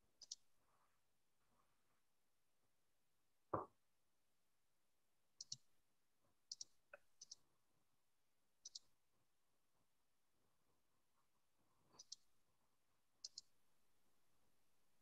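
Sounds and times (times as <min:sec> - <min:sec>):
computer mouse double-clicking: 0:13.2 - 0:13.5.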